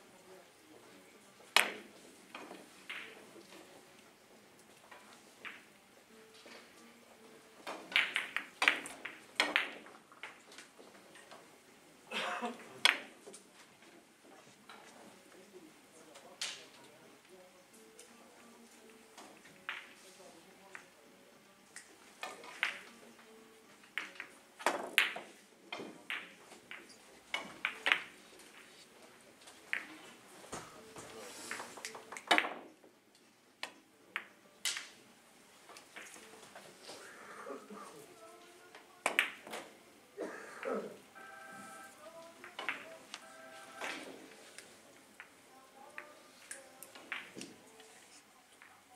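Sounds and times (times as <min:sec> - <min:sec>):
billiard balls clicking: 0:07.6 - 0:11.4, 0:21.8 - 0:22.9, 0:23.8 - 0:28.8, 0:29.4 - 0:32.7, 0:42.4 - 0:47.6.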